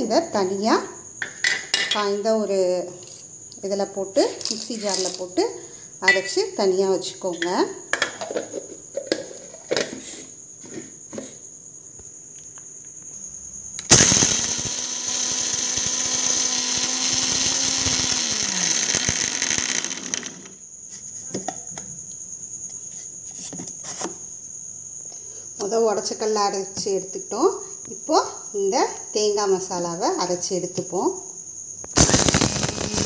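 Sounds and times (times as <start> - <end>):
mixer grinder motor humming: 13.8 - 20.6, 32.0 - 33.0.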